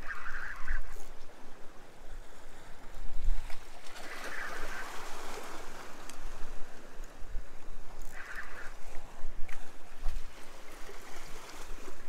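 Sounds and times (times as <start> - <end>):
sea waves splashing against rocks: 2.8 - 12.0.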